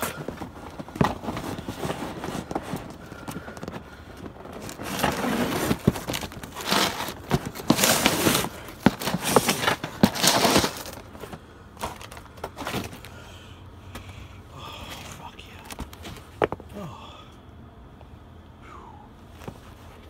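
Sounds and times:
cardboard boxes crushed underfoot: 0:00.0 - 0:13.2.

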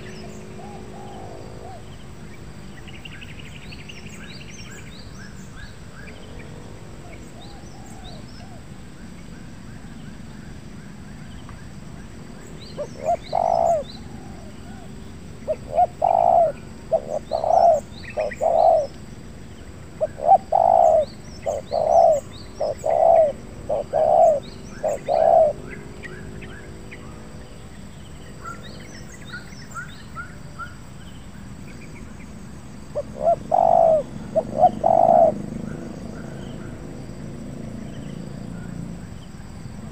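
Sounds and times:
dove cooing: 0:00.0 - 0:01.9, 0:12.8 - 0:19.0, 0:19.9 - 0:27.2, 0:32.9 - 0:37.0
small birds chirping: 0:00.0 - 0:39.9.

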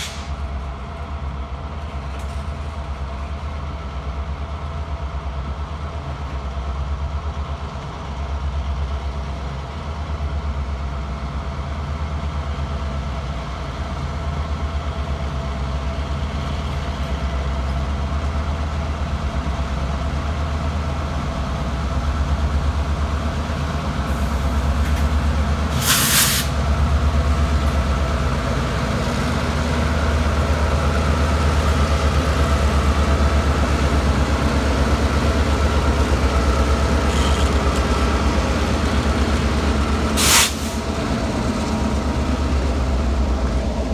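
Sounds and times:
diesel locomotive engine rumble: 0:00.0 - 0:43.9
air hissing: 0:25.7 - 0:26.6, 0:40.2 - 0:40.8.

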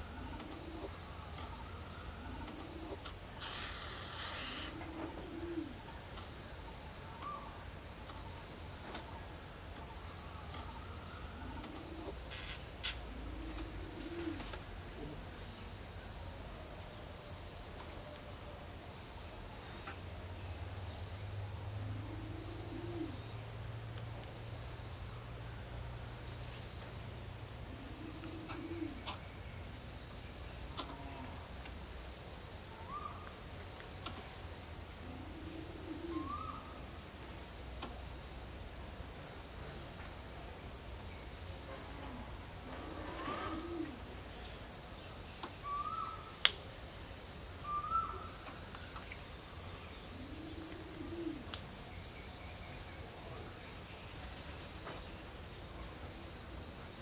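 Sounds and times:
bird cooing hoots: 0:00.0 - 0:06.0, 0:10.4 - 0:12.5, 0:13.1 - 0:15.2, 0:21.8 - 0:23.2, 0:27.7 - 0:29.2, 0:32.8 - 0:33.3, 0:35.0 - 0:36.8, 0:42.0 - 0:44.2, 0:45.6 - 0:46.3, 0:47.6 - 0:48.6, 0:50.1 - 0:51.5
high insect shrill: 0:03.3 - 0:05.0, 0:12.2 - 0:13.1.

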